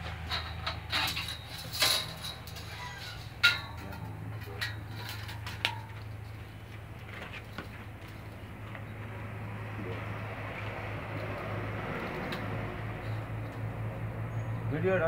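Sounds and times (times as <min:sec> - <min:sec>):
metallic clinks and knocks: 0:00.0 - 0:08.4.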